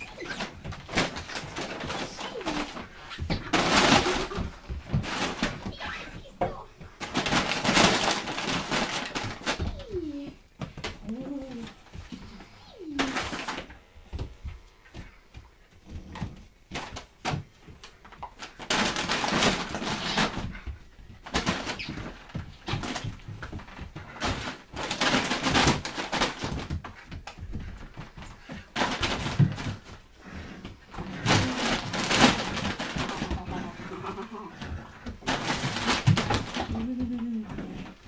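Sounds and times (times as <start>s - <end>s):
puppy scuffling: 0.0s - 38.0s
puppy play-growling: 7.3s - 14.3s, 29.2s - 38.0s.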